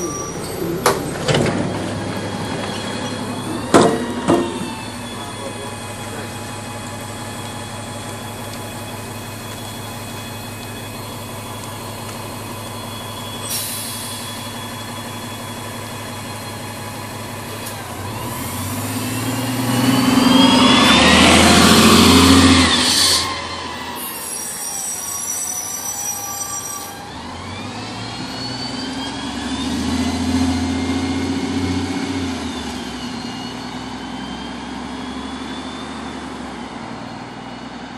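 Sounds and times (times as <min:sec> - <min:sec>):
bus engine: 0:00.0 - 0:37.9
air hiss: 0:13.5 - 0:14.3.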